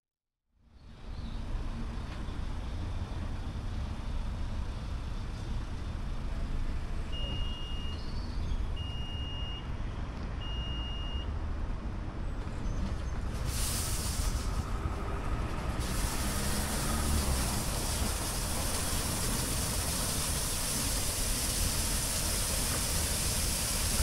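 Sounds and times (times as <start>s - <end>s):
long electronic beeps: 7.2s - 8.1s, 8.8s - 9.7s, 10.4s - 11.3s
water spray hissing: 13.4s - 15.0s, 15.6s - 24.0s
car wash low rumble: 13.5s - 24.0s.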